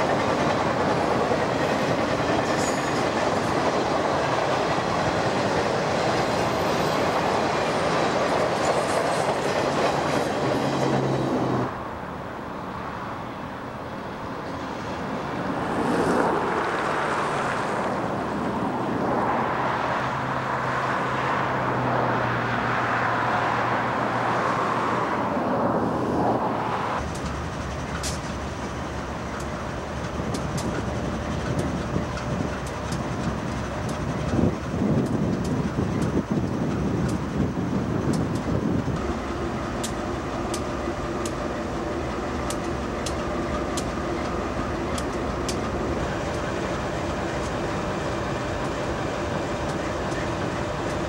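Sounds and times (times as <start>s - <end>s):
diesel locomotive running: 0.0s - 12.4s, 27.0s - 51.0s
freight train rolling past: 0.0s - 51.0s.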